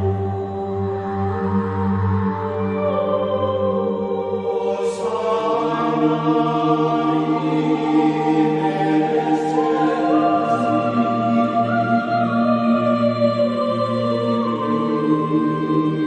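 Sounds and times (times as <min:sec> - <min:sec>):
slow ambient music: 0:00.0 - 0:16.0.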